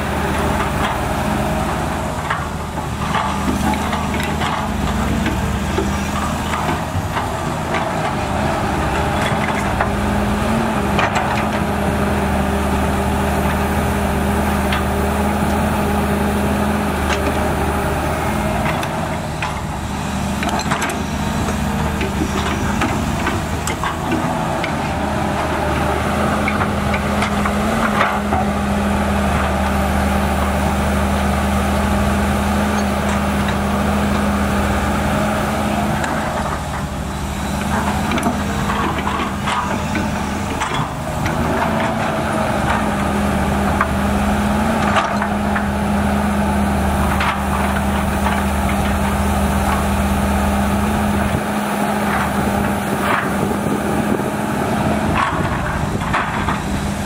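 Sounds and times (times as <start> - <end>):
excavator diesel engine under load: 0.0 - 57.0
hydraulic whines: 12.8 - 57.0
knocks and clunks: 51.0 - 57.0.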